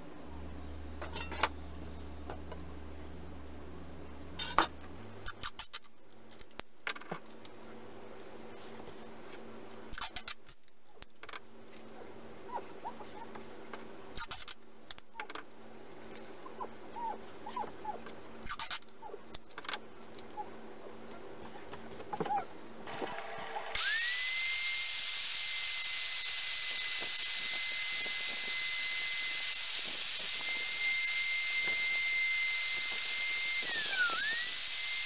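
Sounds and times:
steady low hum: 0.0 - 23.7.

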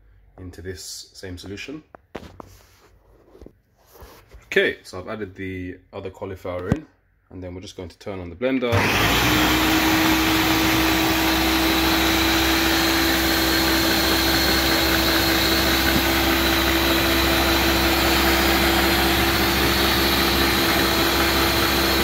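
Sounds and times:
blender motor whining: 8.7 - 22.0.

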